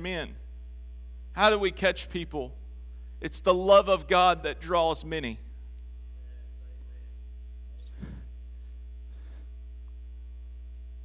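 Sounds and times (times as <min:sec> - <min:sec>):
electrical mains hum: 0:00.0 - 0:11.0.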